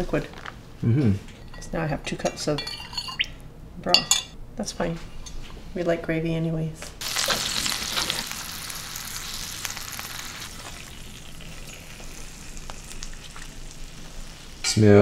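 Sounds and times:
fat sizzling in skillet: 7.0 - 14.9.

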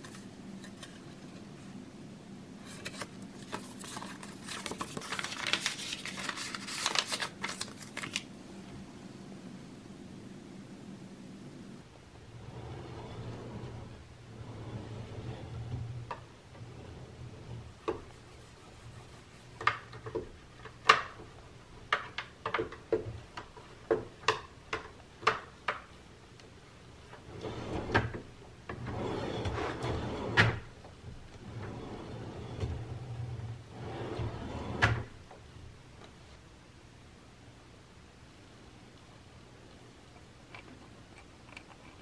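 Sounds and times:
drawer sliding open and shut: 12.3 - 18.0, 27.1 - 35.2.

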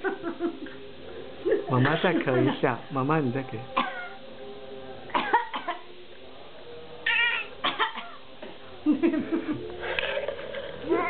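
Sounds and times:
elderly woman coughing: 1.8 - 2.7, 5.1 - 5.8, 7.6 - 8.2.

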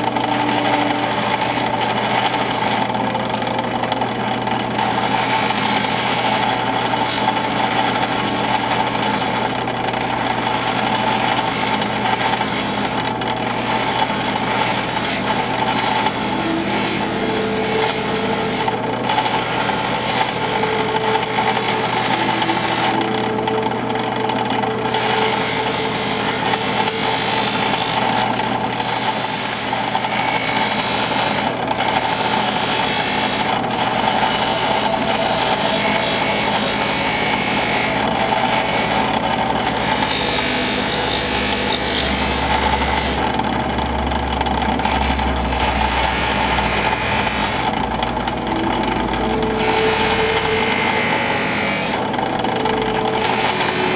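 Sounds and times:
drill press motor running: 0.0 - 53.9.

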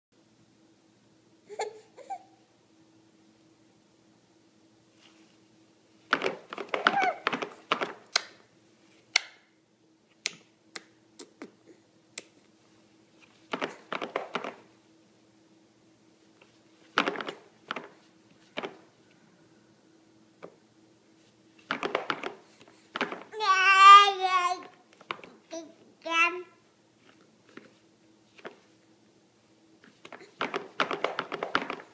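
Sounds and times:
hands slapping plastic tray: 6.1 - 8.4, 13.5 - 14.6, 21.7 - 23.3, 29.8 - 31.9.

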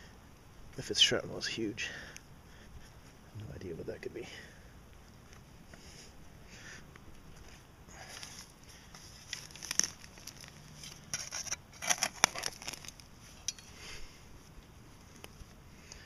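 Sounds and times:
spade digging into soil: 8.3 - 13.8.

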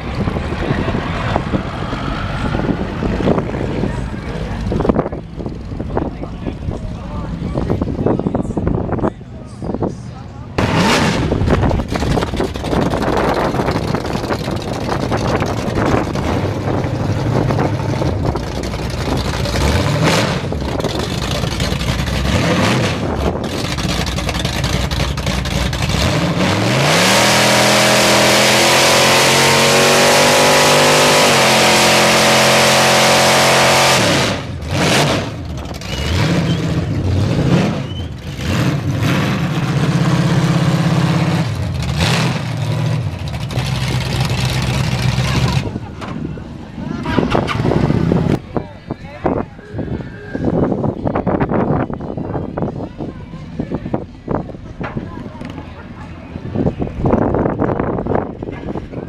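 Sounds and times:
pickup engine revving: 10.6 - 46.0.

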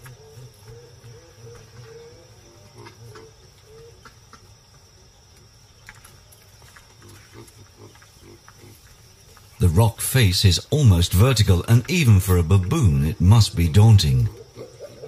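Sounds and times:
wavering animal calls: 0.0 - 4.1, 13.7 - 15.0
insect chorus: 0.0 - 15.0.

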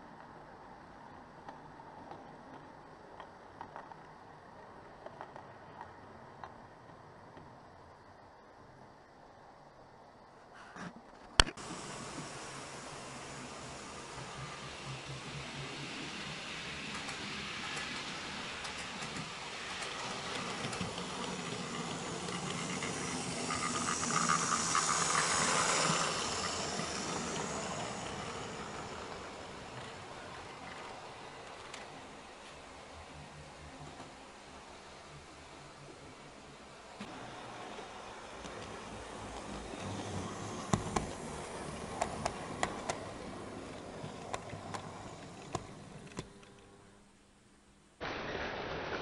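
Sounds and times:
model train wheels rattling on track: 11.6 - 32.9, 37.0 - 46.6.

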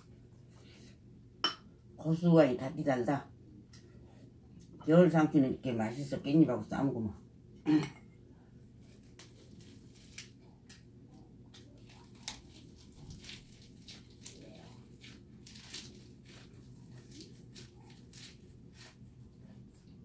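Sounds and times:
crunching and wet chewing: 8.8 - 20.0.

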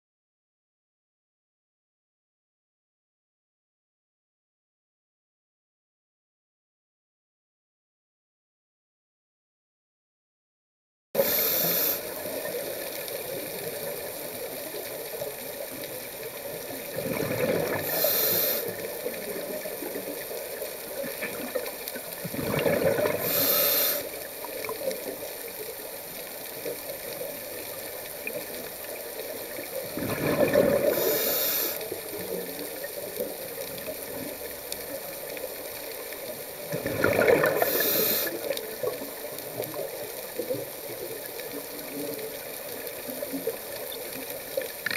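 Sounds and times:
steady underwater hiss: 11.2 - 44.9
breath bubbling underwater: 16.9 - 19.6, 21.0 - 24.1, 29.8 - 31.8, 36.6 - 39.0.

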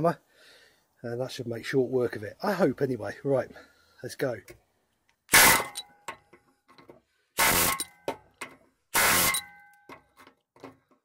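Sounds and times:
pneumatic air hammer bursts: 5.3 - 5.8, 7.3 - 8.0, 8.9 - 9.6.

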